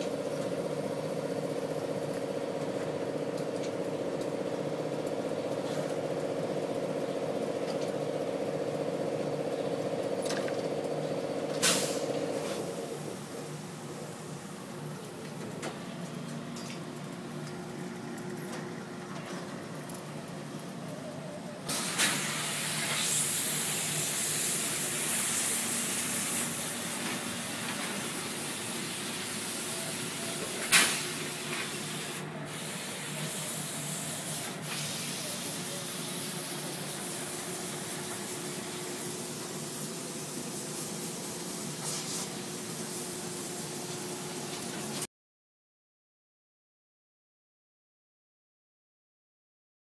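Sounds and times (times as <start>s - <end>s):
steam press humming: 0.0s - 45.0s
steam hissing: 11.6s - 14.5s, 21.7s - 44.9s.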